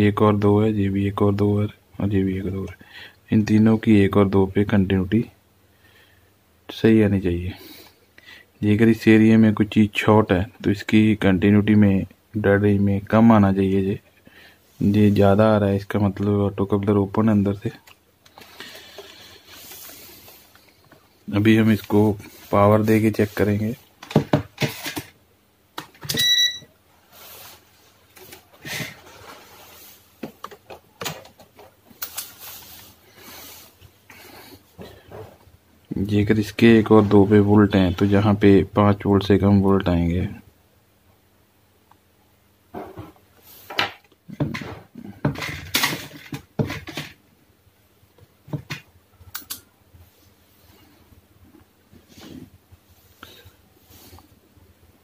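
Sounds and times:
multimeter and probes knocking and scraping: 21.9 - 25.2
short electronic beep: 26.2 - 26.7
sharp click: 49.3 - 49.7.

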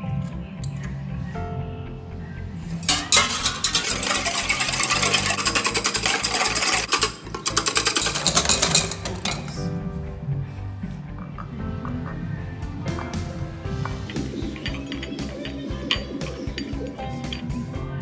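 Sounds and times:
soft background music: 0.0 - 18.0
whisk clicking against metal bowl: 2.9 - 9.5.

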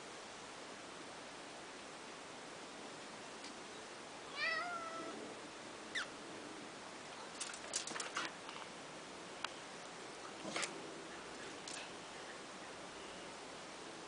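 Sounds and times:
cat meowing: 4.3 - 5.2.

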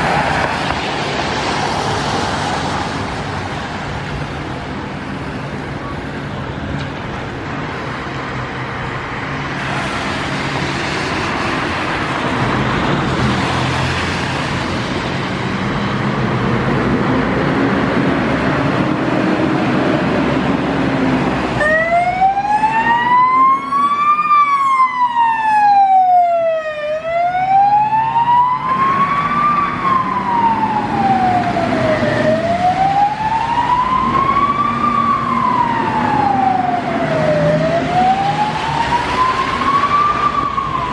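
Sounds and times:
road and engine noise: 0.0 - 40.9
fire engine siren wailing: 17.4 - 40.9.

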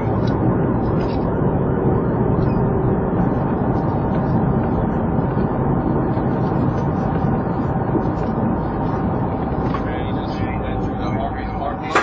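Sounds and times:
muffled car road and engine noise: 0.0 - 12.0.

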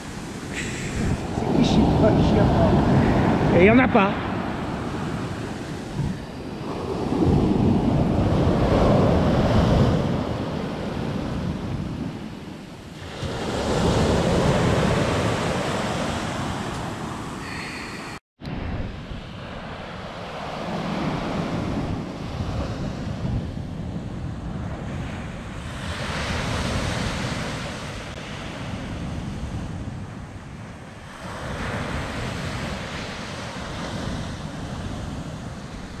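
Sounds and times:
waves breaking on a beach: 0.0 - 36.0
wind buffeting microphone: 0.0 - 36.0.

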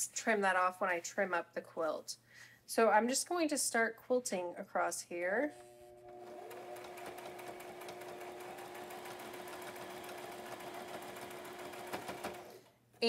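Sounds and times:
sewing machine stitching: 6.0 - 12.8.

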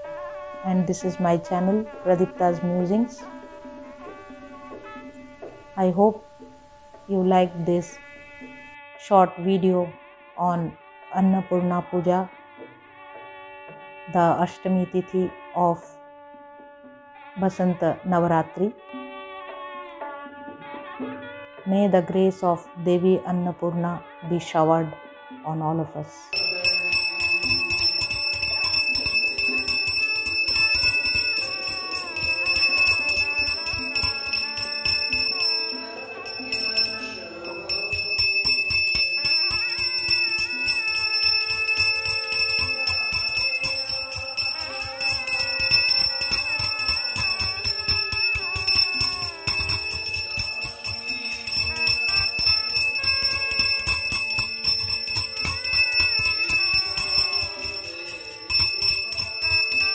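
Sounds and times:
hand bell ringing rapidly: 26.4 - 59.9.

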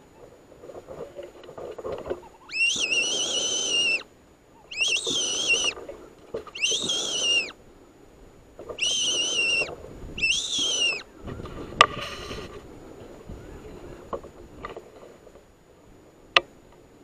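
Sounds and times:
fox call high-pitched squeals: 2.2 - 5.8, 6.5 - 7.6, 8.8 - 11.1.

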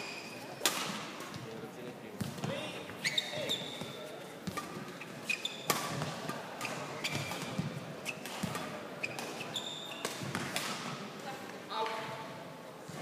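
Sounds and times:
rackets striking shuttlecocks: 0.6 - 1.4, 5.6 - 11.0
shoes squeaking on court: 2.2 - 10.5.

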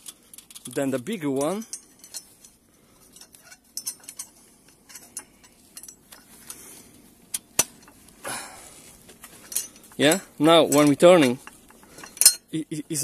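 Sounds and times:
metal fittings clicking and clinking: 0.0 - 6.6, 9.3 - 12.5.

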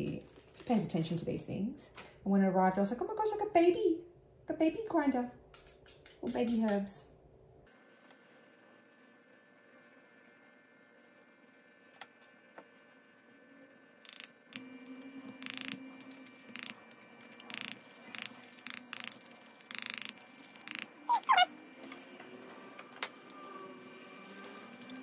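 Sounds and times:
short rising squeak: 20.6 - 21.5.

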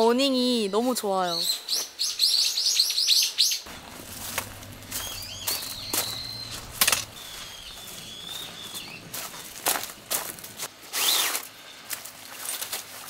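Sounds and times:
bird calls: 0.8 - 10.1
bird chirps: 1.3 - 9.6
gear knocking and clattering: 3.7 - 7.2.

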